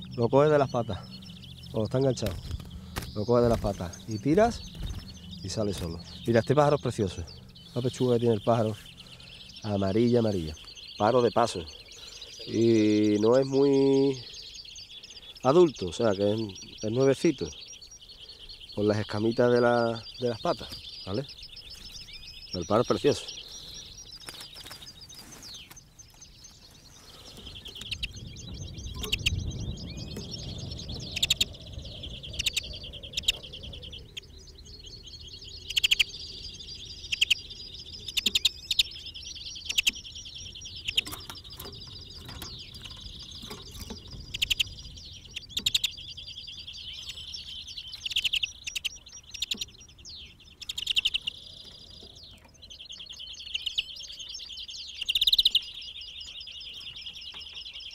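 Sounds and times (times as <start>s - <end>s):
low rumble: 0.0s - 11.0s, 27.1s - 48.0s
finch singing twittering trills: 0.0s - 57.9s.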